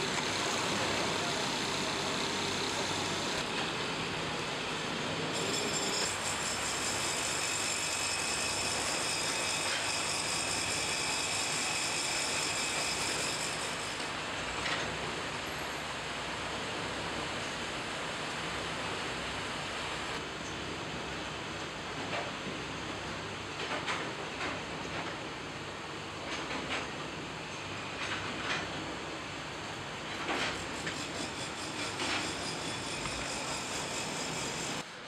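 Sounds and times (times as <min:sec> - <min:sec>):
coil-winding machine running: 0:00.0 - 0:03.6.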